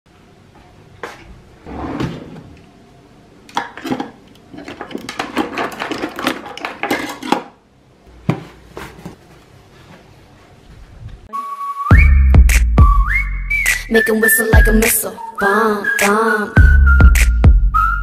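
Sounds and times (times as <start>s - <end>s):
cutlery clinking in drawer tray: 3.6s - 7.5s.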